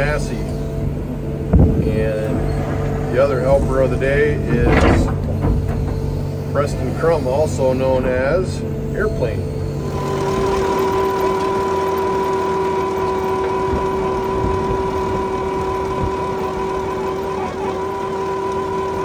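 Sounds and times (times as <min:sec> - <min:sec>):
diesel engine running under load: 0:00.0 - 0:19.0.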